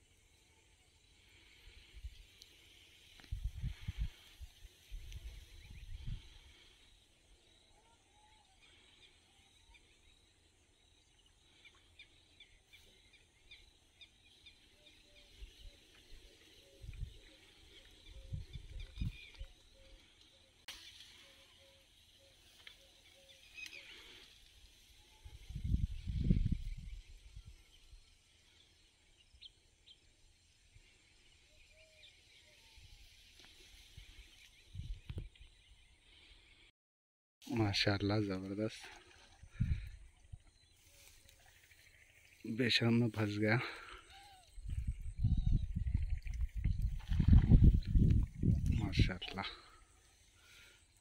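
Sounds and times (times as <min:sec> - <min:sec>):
faint bird chirps: 0:00.4 - 0:36.4
faint bird call: 0:43.8 - 0:45.9.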